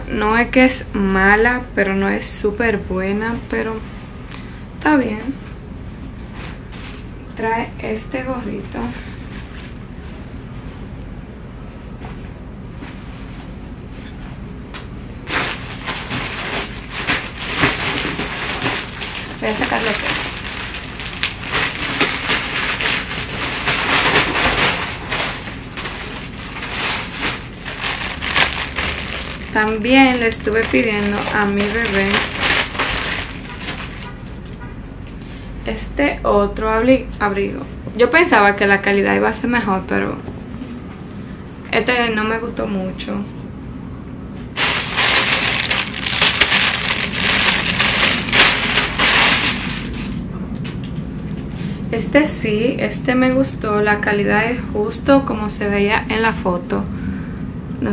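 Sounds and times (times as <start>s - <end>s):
plastic bag crinkling: 15.2s - 34.5s, 44.5s - 50.9s.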